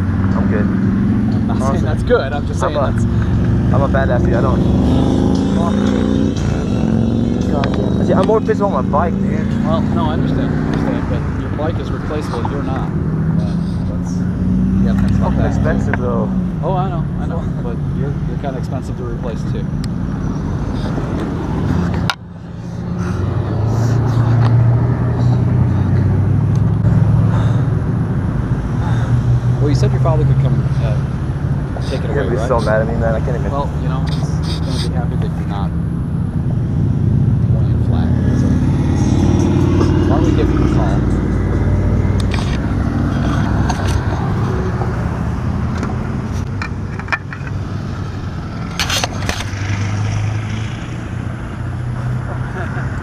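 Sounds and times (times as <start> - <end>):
vehicle engine humming: 0.0 - 53.0.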